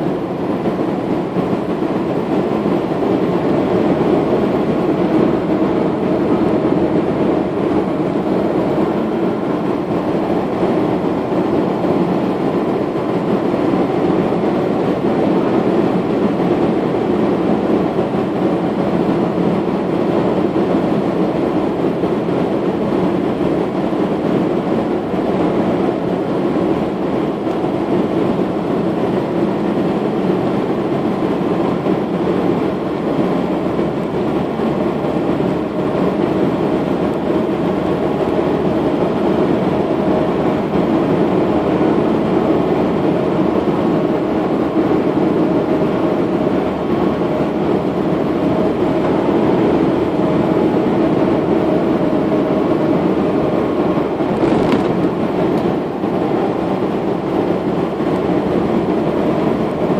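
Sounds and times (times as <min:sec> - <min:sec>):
car engine noise: 0:00.0 - 0:59.9
tyre rumble on asphalt: 0:54.2 - 0:55.5.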